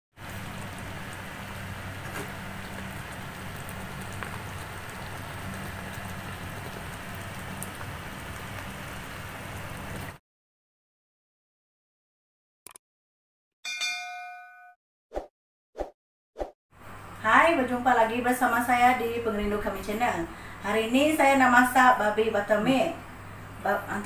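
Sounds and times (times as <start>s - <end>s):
sauce sizzling and bubbling: 0.2s - 10.2s.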